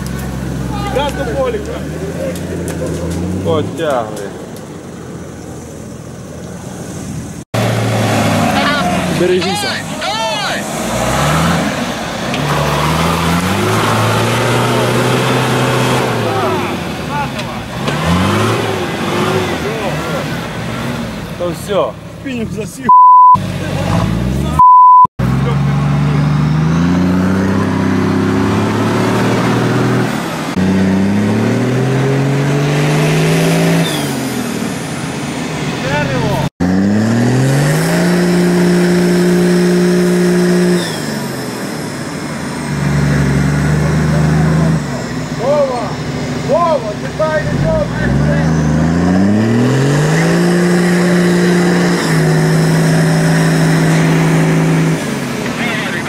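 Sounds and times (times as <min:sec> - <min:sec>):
engine revving hard: 0:07.5 - 0:21.5, 0:25.2 - 0:56.0.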